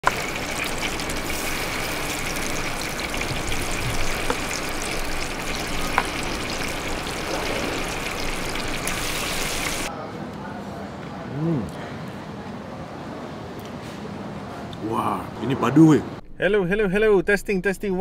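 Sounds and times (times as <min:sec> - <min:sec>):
chicken sizzling in hot oil: 0:00.0 - 0:09.9.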